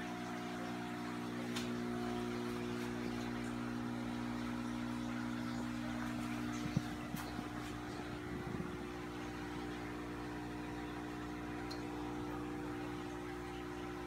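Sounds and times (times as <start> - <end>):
aquarium equipment humming: 0.0 - 14.0.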